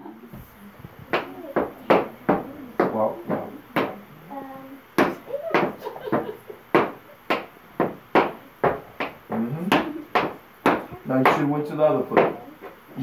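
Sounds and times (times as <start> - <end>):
tap shoes on wooden board: 1.0 - 4.0, 5.0 - 11.5, 12.1 - 12.8.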